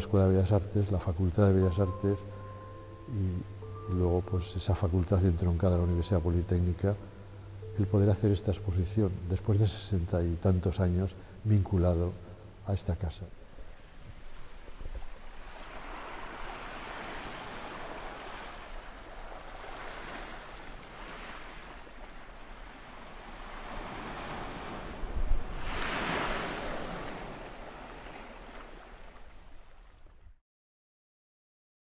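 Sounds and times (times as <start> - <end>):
ocean waves washing in: 13.4 - 29.8.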